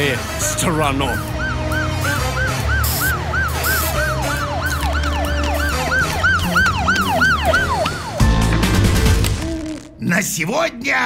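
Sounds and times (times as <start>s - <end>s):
police sirens yelping: 0.0s - 8.6s.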